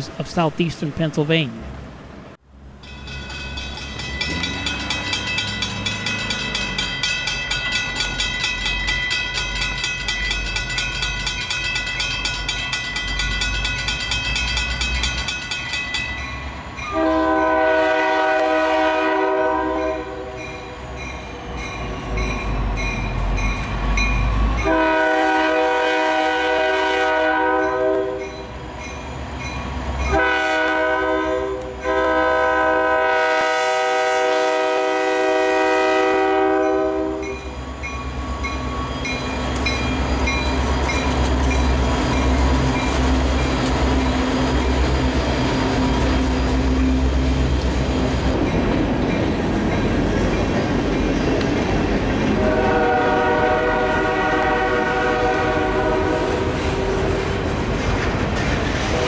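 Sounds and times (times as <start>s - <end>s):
diesel locomotive rumble: 0.0s - 59.0s
crossing bell ringing: 2.7s - 17.4s, 19.7s - 25.0s, 27.5s - 30.5s, 35.9s - 54.9s
locomotive air horn blasts: 16.9s - 20.4s, 24.6s - 28.3s, 30.1s - 37.4s, 52.4s - 57.3s.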